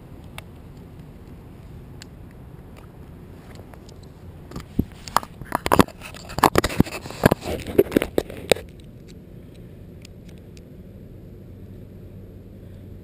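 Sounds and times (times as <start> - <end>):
camera handled with crunching knocks: 3.5 - 8.9.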